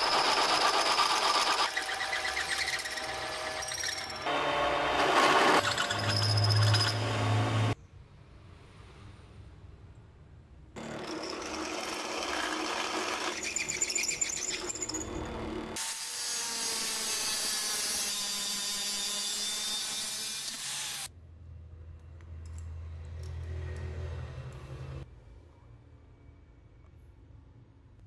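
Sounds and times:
angle grinder cutting steel: 0.0s - 7.8s, 10.8s - 21.1s
power tool working metal: 0.0s - 7.8s, 10.8s - 21.1s.

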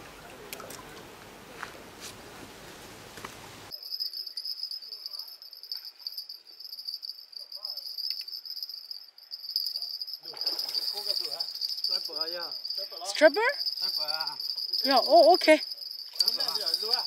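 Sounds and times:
insects trilling: 3.7s - 17.0s.

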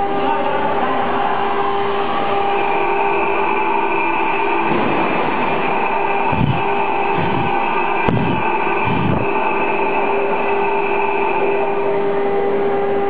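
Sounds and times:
cnc router spindles whining: 0.0s - 13.0s
low thumps: 4.0s - 11.1s.

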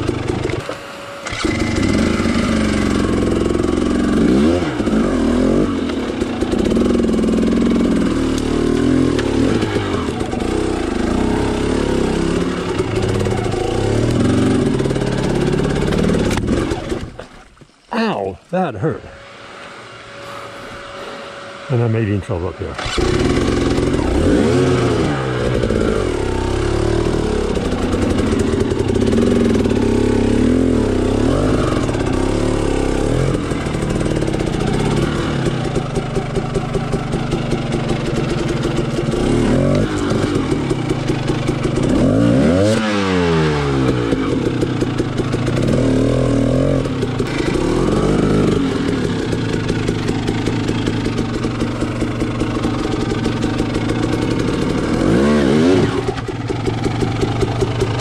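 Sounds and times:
dirt bike engine revving: 0.0s - 17.4s, 18.0s - 58.0s.

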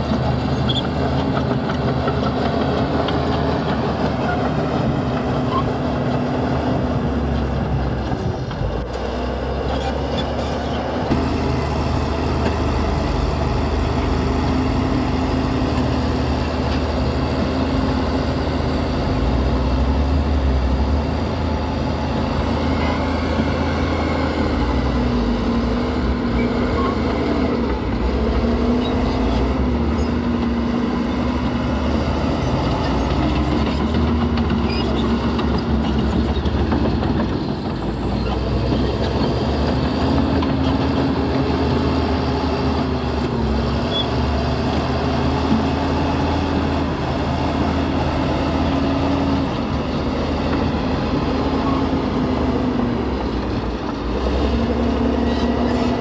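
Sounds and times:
diesel engine under load: 0.0s - 56.0s.

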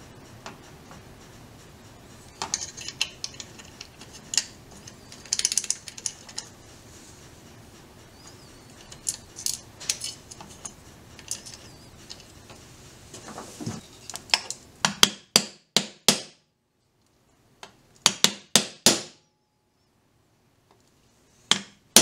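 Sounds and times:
small metal parts clicking: 2.3s - 6.6s, 8.4s - 12.4s
hammer striking steel punch: 14.9s - 16.4s.

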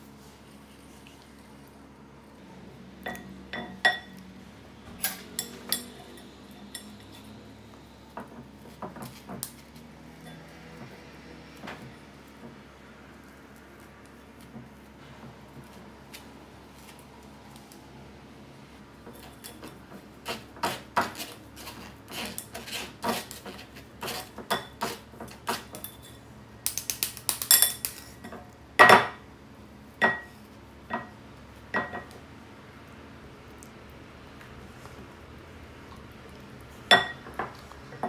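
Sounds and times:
metal clinking on glass bowl: 5.0s - 7.0s, 27.5s - 29.1s, 36.9s - 37.3s.

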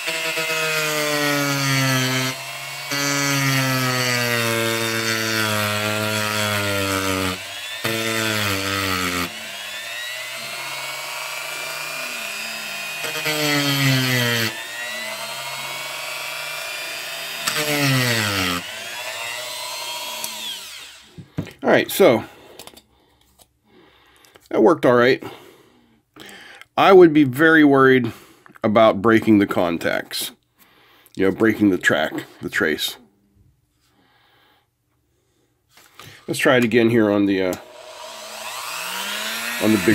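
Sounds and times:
rotary tool wire wheel grinding: 37.6s - 39.9s.

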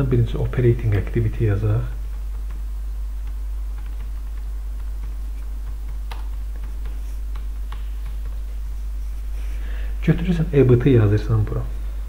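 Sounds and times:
low electrical hum: 0.0s - 12.0s
keyboard keys clicking: 2.0s - 8.6s.

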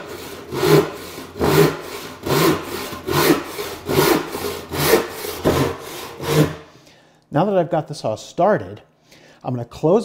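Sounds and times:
hand saw cutting wood: 0.0s - 6.7s.

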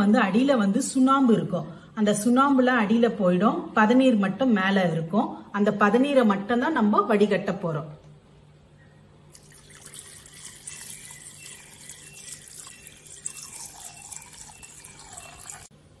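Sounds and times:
liquid pouring into cloth strainer: 9.3s - 15.7s
liquid splashing and trickling: 9.3s - 15.7s.

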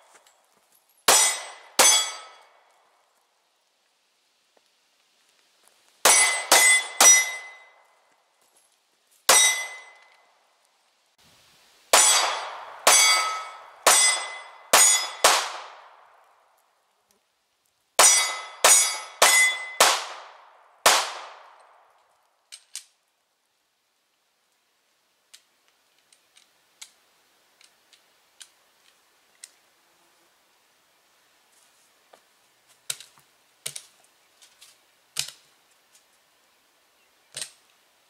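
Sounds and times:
pistol shots: 12.0s - 16.0s, 18.0s - 21.6s
faint clicks: 25.2s - 27.0s, 27.6s - 29.6s.

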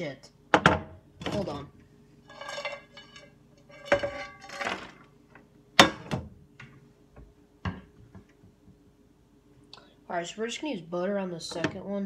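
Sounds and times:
faint steady hum: 0.0s - 12.0s
pans and dishes clinking: 2.3s - 5.0s.

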